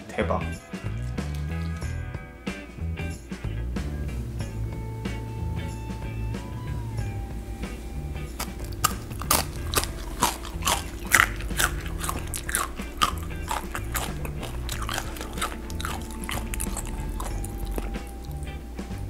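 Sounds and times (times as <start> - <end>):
crunchy chewing: 8.2 - 18.6.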